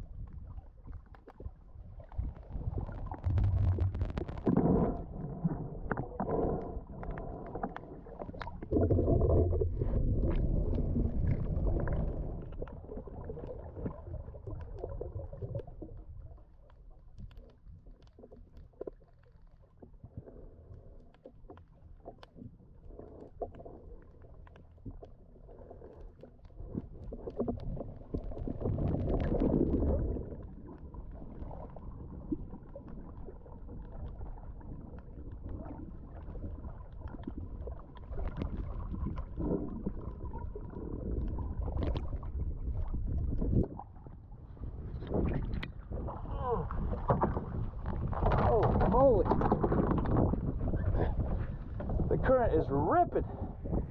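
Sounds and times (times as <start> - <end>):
muffled underwater water movement: 0.0 - 53.9
small clicks underwater: 0.1 - 43.8, 44.9 - 46.0, 46.8 - 52.1.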